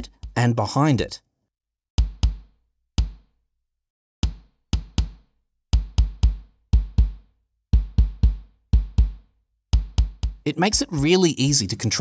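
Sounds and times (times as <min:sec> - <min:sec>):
kick drum hits: 0:02.0 - 0:03.3, 0:04.2 - 0:11.1.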